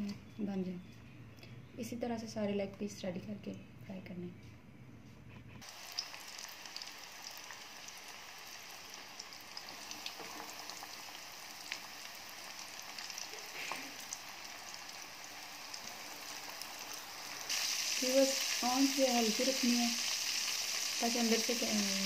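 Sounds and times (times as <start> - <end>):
chicken deep-frying in oil: 5.6 - 22.0.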